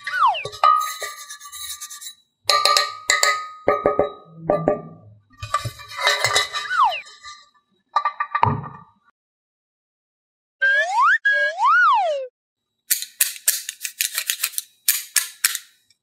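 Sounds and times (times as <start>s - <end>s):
falling slide-whistle glide: 0.0s - 0.7s, 6.6s - 7.2s, 10.6s - 12.3s
playful percussive music: 0.0s - 1.4s
wood-block and clinking hits: 2.5s - 4.9s.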